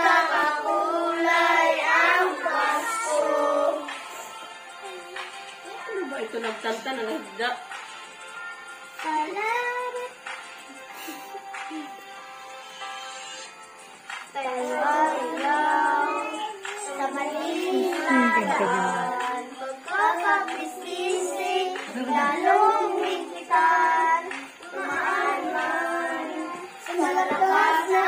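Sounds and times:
children singing: 0.0s - 5.8s, 14.3s - 28.0s.

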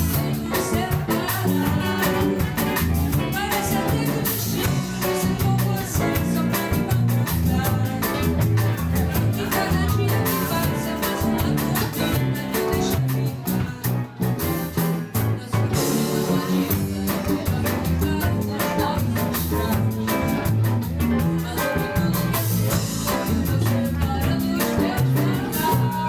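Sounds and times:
bass guitar: 0.0s - 26.0s
drums: 0.0s - 26.0s
electric guitar: 0.0s - 26.0s
woman singing into microphone: 0.0s - 26.0s.

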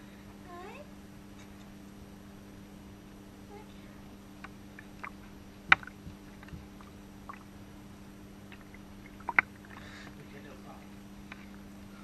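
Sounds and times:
steady low hum: 0.0s - 12.0s
bathwater splashing and dripping: 4.7s - 7.6s, 8.5s - 10.1s.

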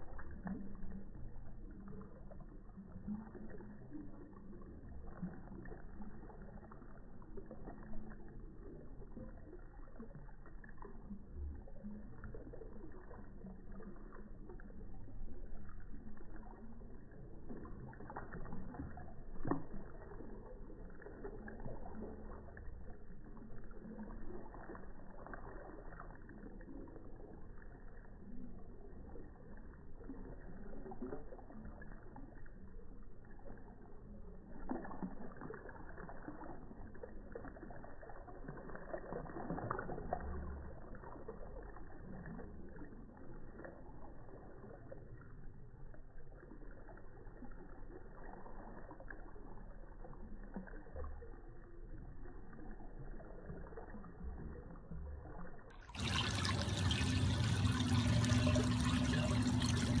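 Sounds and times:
waterfall splashing into pool: 55.9s - 60.0s.

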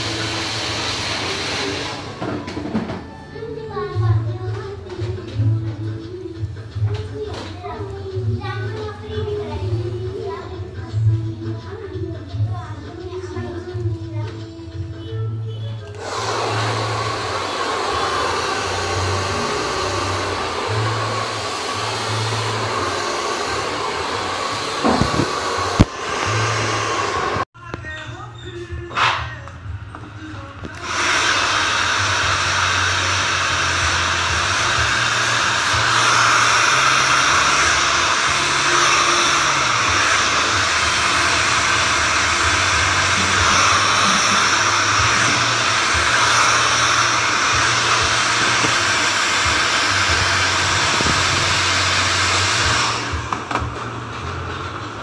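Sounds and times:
hair dryer blowing: 0.0s - 3.1s, 9.2s - 10.1s, 15.8s - 27.5s, 30.7s - 55.0s.

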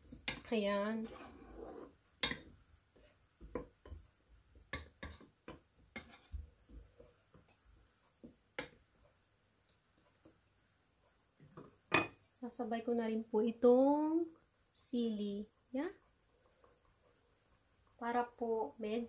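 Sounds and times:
wooden spatula scraping a pot: 0.0s - 8.4s, 15.9s - 19.0s.

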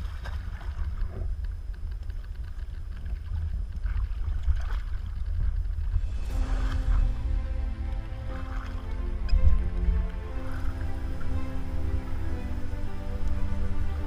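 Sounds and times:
boat engine low rumble: 0.0s - 14.0s
water splashing against hull: 0.0s - 14.0s
music: 6.0s - 14.0s.

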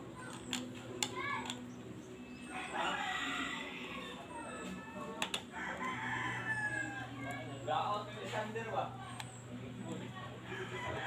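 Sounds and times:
rooster crowing: 2.5s - 4.8s, 5.5s - 7.2s, 10.5s - 11.0s.

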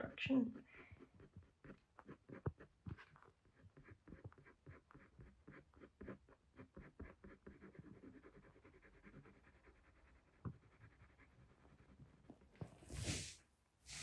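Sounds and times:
pencil scratching on paper: 0.3s - 14.0s
pencil tap: 1.0s - 6.2s, 10.3s - 10.9s.

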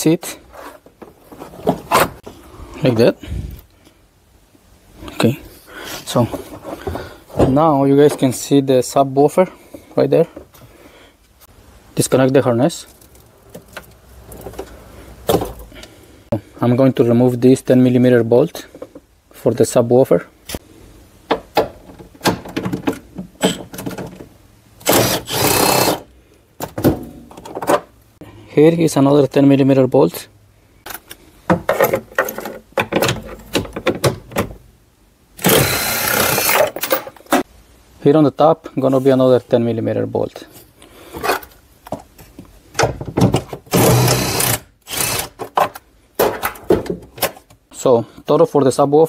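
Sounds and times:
cordless power tool whirring: 24.9s - 26.0s.

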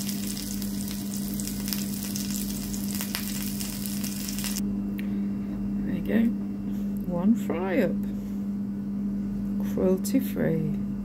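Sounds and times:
food sizzling in a pan: 0.0s - 4.6s
low hum: 0.0s - 9.7s.

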